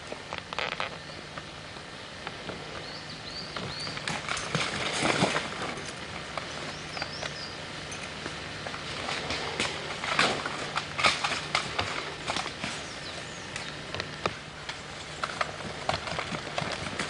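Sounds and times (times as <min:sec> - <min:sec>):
footsteps in undergrowth: 0:00.0 - 0:17.0
bird chirping: 0:02.7 - 0:04.1, 0:06.4 - 0:07.7, 0:12.4 - 0:13.8.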